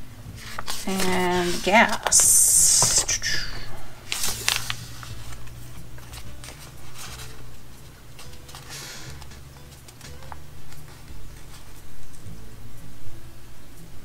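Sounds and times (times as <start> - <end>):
steady low hum: 0.0 - 8.6
paper sheets rustling: 0.4 - 11.8.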